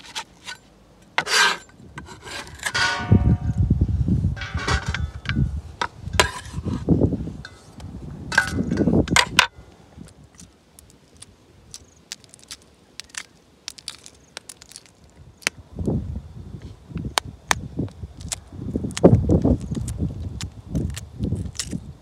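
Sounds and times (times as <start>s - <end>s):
eggshell cracking while peeled: 10.1s - 15.6s, 17.1s - 21.9s.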